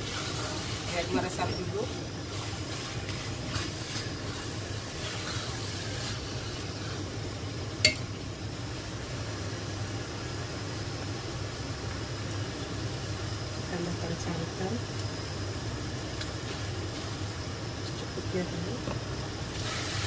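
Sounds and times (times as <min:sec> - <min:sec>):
spatula scraping pot: 0:00.0 - 0:06.8
faint sizzle: 0:00.0 - 0:20.0
steady low hum: 0:00.0 - 0:20.0
sharp clink: 0:07.8 - 0:08.2.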